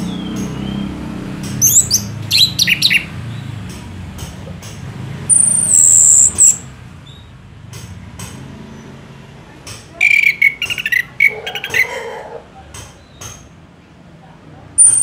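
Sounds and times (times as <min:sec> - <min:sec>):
bird chattering notes: 0:00.0 - 0:03.4, 0:05.3 - 0:06.7, 0:10.0 - 0:12.3, 0:14.8 - 0:15.0
bird high thin whistle: 0:10.0 - 0:11.4.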